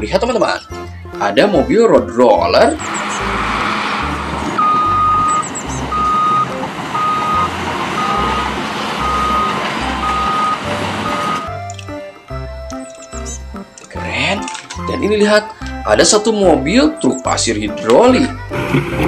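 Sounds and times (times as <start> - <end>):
diesel engine running: 2.4 - 13.8, 15.1 - 19.0
reversing alarm beeping: 2.6 - 13.8, 16.5 - 17.4.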